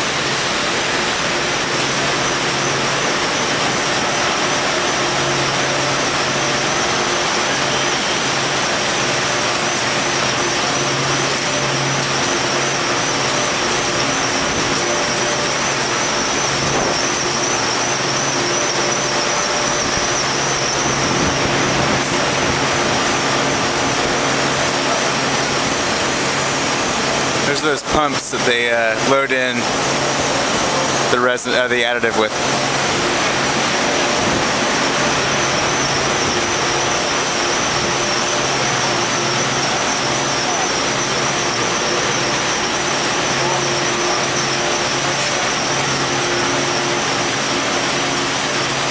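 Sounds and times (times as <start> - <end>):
high wavering whine: 0.0 - 48.9
pump machine hum: 0.0 - 48.9.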